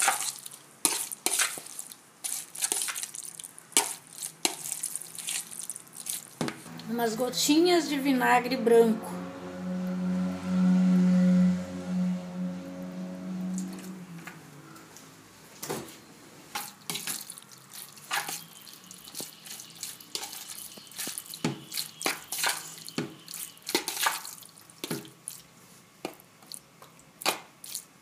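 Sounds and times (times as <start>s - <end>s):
meat squelching: 0.0s - 6.8s, 16.6s - 25.5s, 26.4s - 28.0s.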